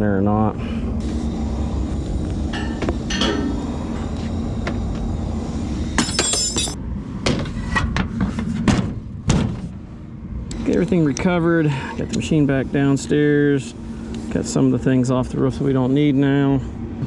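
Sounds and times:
steady low rumble: 0.0 - 17.0
high jingle: 6.0 - 6.8.

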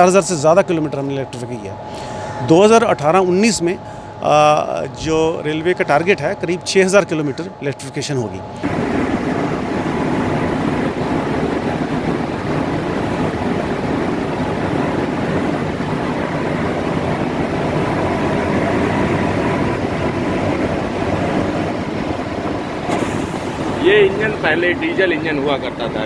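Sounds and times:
faint steady hum: 0.0 - 26.0
locomotive cab rumble: 8.6 - 26.0.

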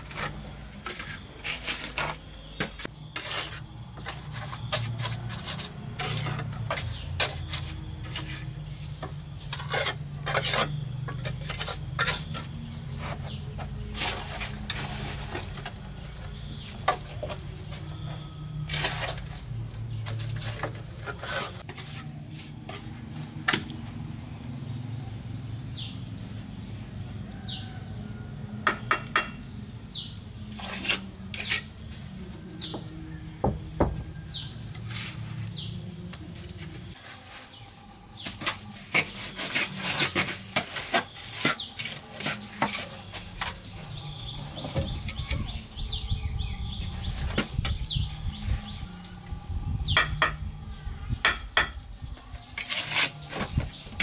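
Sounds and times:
trowel scraping on mortar: 0.0 - 15.9, 18.6 - 22.9, 30.5 - 31.7, 38.2 - 43.8, 52.4 - 54.0
high insect drone: 0.0 - 54.0.

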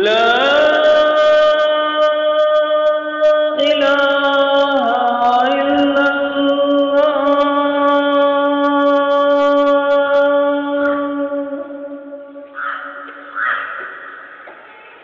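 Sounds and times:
person chanting long notes: 0.0 - 13.3.

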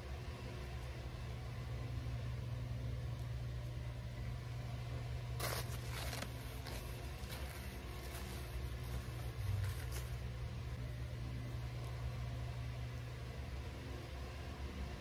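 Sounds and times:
steady low hum: 0.0 - 15.0
wipe rustling on fur: 5.4 - 10.3.

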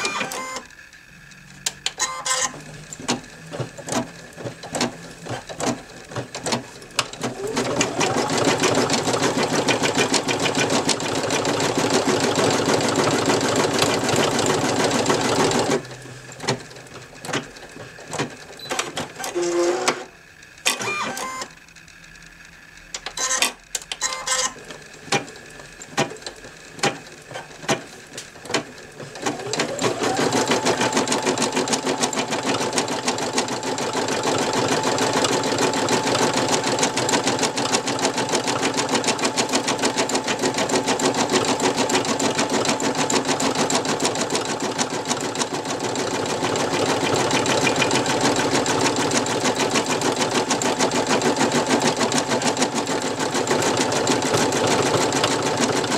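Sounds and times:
embroidery machine stitching: 0.0 - 0.8, 1.4 - 21.5, 22.9 - 55.9
motor whine winding up: 0.0 - 5.3, 19.2 - 24.8.

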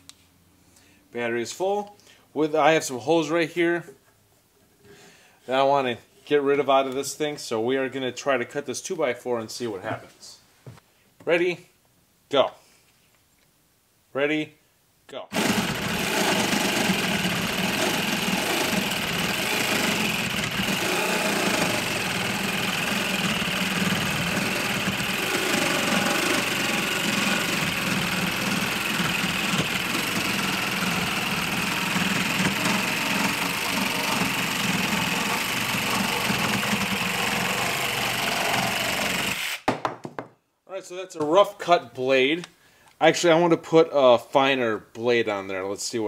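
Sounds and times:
reciprocating saw cutting wood: 15.3 - 39.7.

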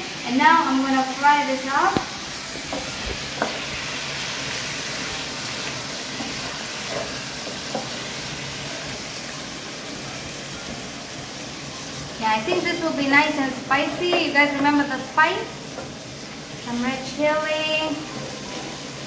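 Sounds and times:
chicken frying in oil: 0.0 - 19.0
wooden spatula stirring and knocking: 2.5 - 9.0, 15.7 - 16.1.

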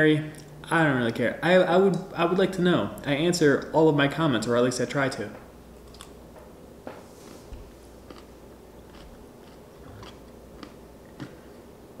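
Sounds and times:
crunchy pickle chewing: 5.8 - 6.2, 7.3 - 11.6.

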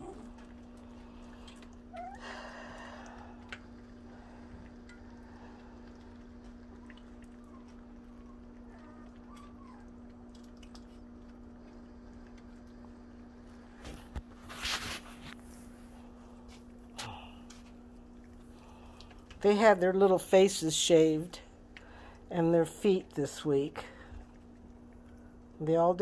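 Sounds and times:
puppies lapping and chewing: 0.0 - 26.0
steady low hum: 0.0 - 26.0
noisy scuffle: 13.8 - 15.4.

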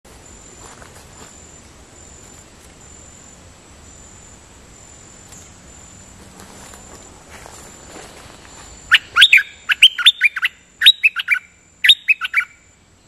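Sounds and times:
insect trilling high note: 8.9 - 12.8.

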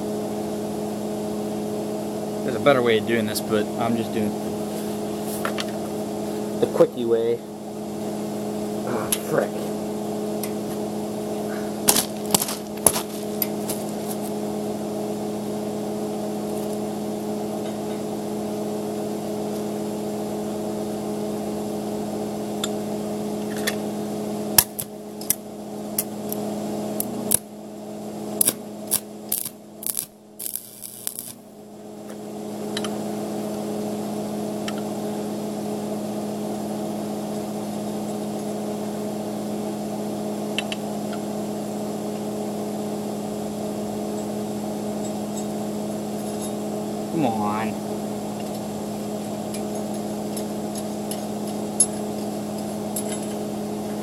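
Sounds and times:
arc welder humming: 0.0 - 54.0
welding electrode crackling: 11.8 - 14.3, 24.6 - 25.4, 26.0 - 27.5, 28.4 - 31.6.

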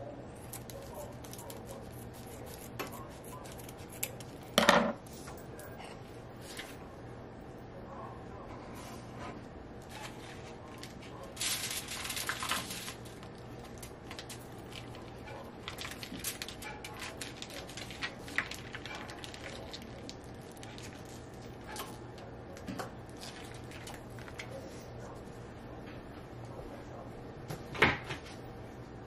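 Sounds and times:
plastic pouch crinkling: 10.8 - 21.6.

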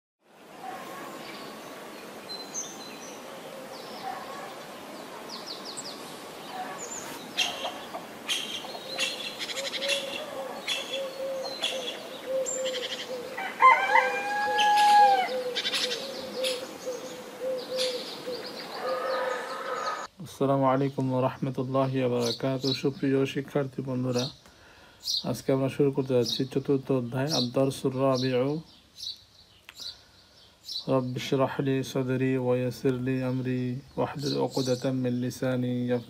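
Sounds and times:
small birds chirping: 0.6 - 13.5, 14.6 - 36.0
rooster crowing: 12.6 - 16.6, 18.8 - 20.1.

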